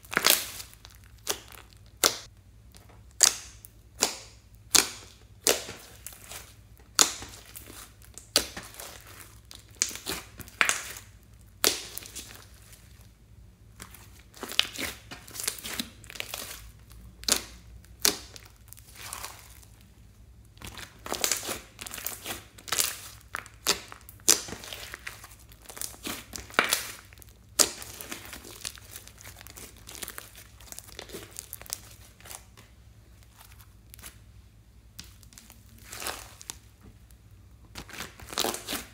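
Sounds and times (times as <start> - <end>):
slime popping and crackling: 0.0 - 12.9, 13.7 - 19.8, 20.4 - 34.2, 34.9 - 36.8, 37.7 - 38.9.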